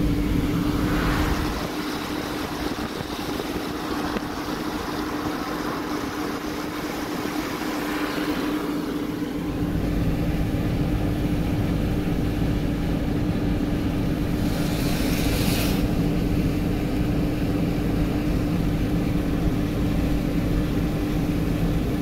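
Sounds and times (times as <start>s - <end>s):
car road and engine noise: 0.0s - 22.0s
rushing hiss: 14.3s - 16.0s.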